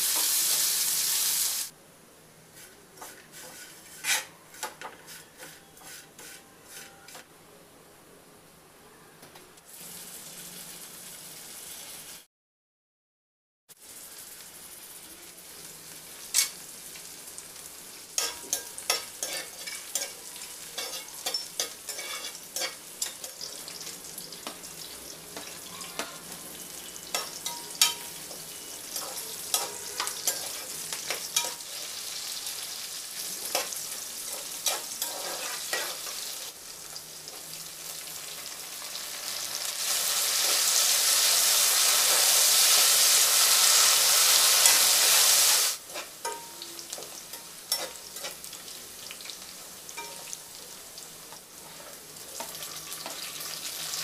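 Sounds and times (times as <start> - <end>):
spices and onion frying in oil: 0.0 - 1.8, 2.4 - 7.2, 9.6 - 12.3, 13.7 - 54.0
loud steady sizzle: 0.0 - 6.3, 9.6 - 12.3, 13.7 - 54.0
metal spoon tapping a pot: 27.1 - 28.3, 46.2 - 46.6.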